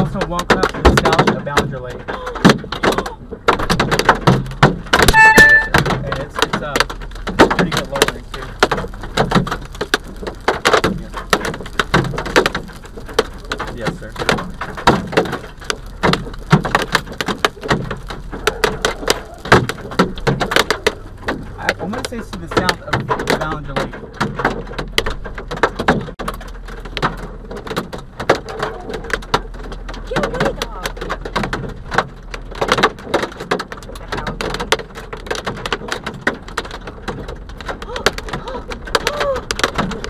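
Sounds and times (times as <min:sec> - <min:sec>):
hailstones striking a car: 0:00.0 - 0:40.0
rain hiss: 0:05.1 - 0:23.9.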